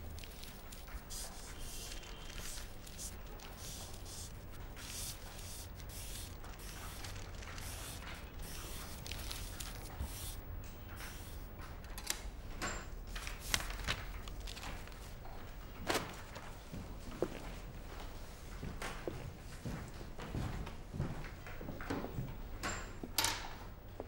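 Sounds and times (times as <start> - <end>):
tissue rubbing calculator keys: 0.0 - 11.5.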